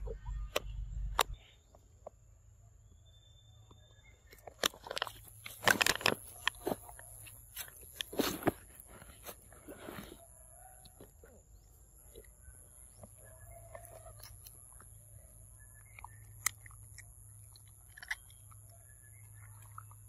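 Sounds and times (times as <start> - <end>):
clicks crackles and rustles: 4.2 - 11.4, 15.8 - 20.0.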